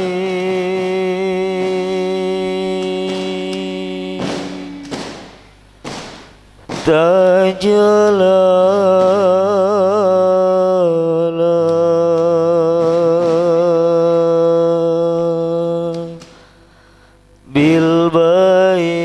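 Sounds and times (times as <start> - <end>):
man chanting devotional melody: 0.0 - 5.3, 6.7 - 16.6, 17.4 - 19.0.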